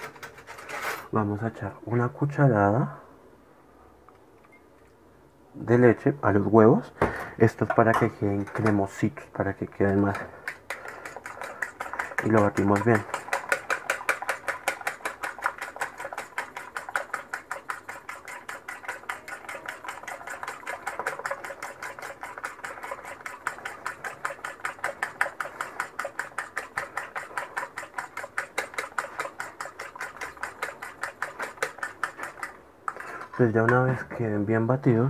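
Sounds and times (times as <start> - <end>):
fork beating eggs in ceramic bowl: 7.5 - 34.0.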